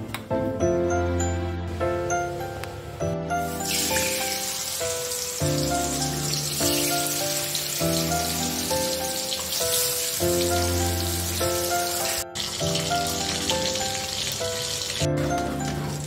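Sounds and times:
music of slow held chords: 0.0s - 16.0s
fish sizzling in hot oil: 3.5s - 16.0s.

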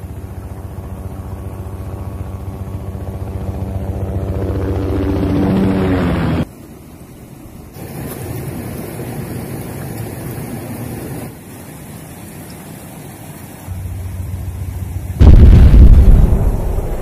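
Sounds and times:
helicopter rotor chopping: 0.0s - 6.5s.

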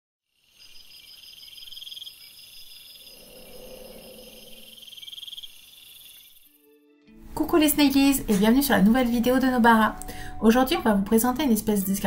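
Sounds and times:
crickets chirring: 0.3s - 6.6s
soft low swell: 3.1s - 4.8s.

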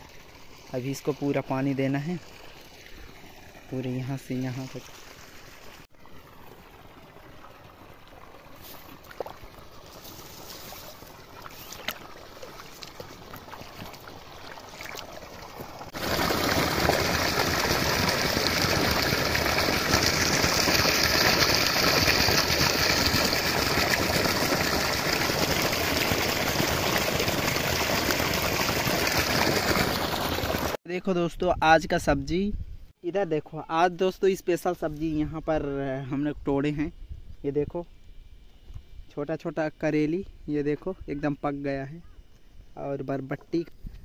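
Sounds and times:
water trickling in a channel: 0.0s - 30.0s
water gushing from a pipe: 0.0s - 30.8s.

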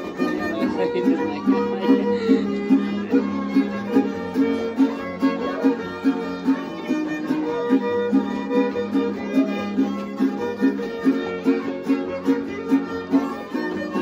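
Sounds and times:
fiddle melody: 0.0s - 14.0s
strummed guitar: 0.0s - 14.0s.

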